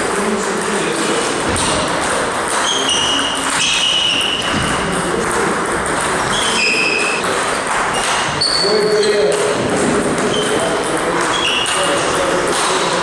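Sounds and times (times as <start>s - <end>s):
busy hall with voices: 0.0s - 13.0s
table tennis ball clicking: 0.0s - 13.0s
short high squeaks: 2.6s - 4.5s, 6.3s - 7.2s, 8.0s - 9.2s, 11.3s - 11.8s.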